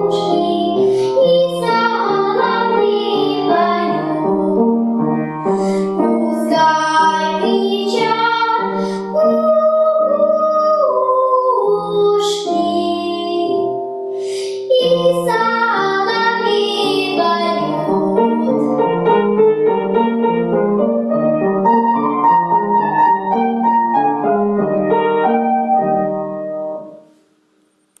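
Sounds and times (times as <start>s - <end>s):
girl singing: 0.0s - 4.9s, 5.5s - 19.2s
upright piano: 0.0s - 27.1s.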